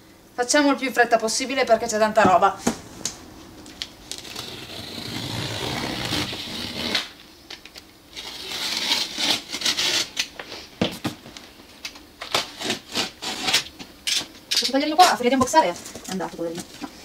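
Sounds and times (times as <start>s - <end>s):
utility knife cutting cardboard: 4.2s - 7.1s, 8.2s - 10.2s.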